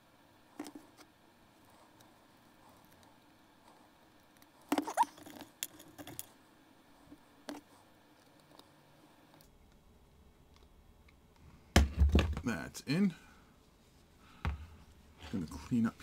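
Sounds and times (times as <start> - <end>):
clicks and scrapes of small parts: 4.2 - 6.4, 7.4 - 9.5.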